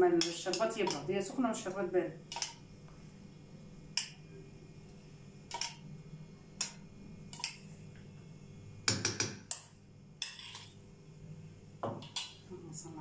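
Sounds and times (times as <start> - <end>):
metal spoon clinking on bowl: 9.5 - 10.7.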